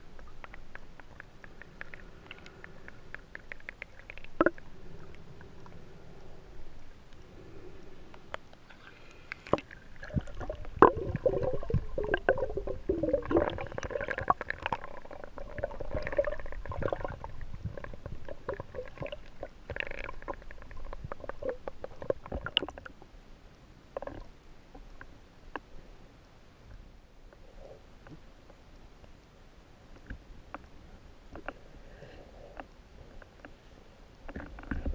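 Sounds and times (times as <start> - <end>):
gurgling underwater: 9.5 - 22.9
underwater clicks and knocks: 34.3 - 34.9.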